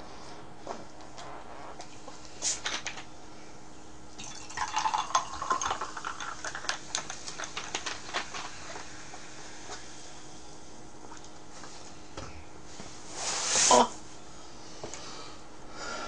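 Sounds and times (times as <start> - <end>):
cola pouring and fizzing: 4.2 - 8.5.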